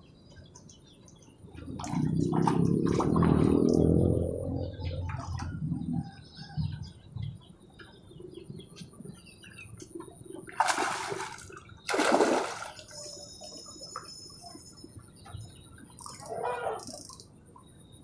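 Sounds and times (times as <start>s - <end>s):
birds chirping: 0.0s - 18.0s
fish splashing in water: 10.4s - 13.6s.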